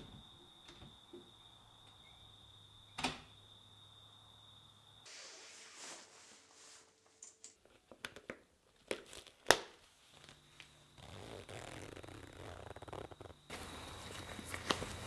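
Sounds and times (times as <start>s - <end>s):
jacket zipper pulled up: 11.0s - 13.4s.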